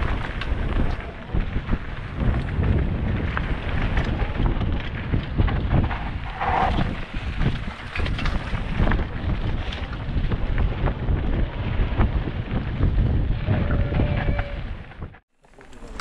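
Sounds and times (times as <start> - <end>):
wind buffeting microphone: 0.0 - 15.2
mountain bike rattling: 0.0 - 16.0
tyres rumbling on dirt trail: 0.0 - 16.0.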